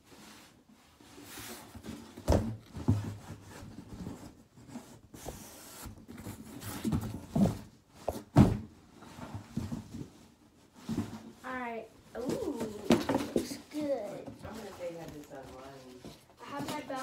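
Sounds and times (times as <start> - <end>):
package rustling and scraping: 12.2 - 17.0.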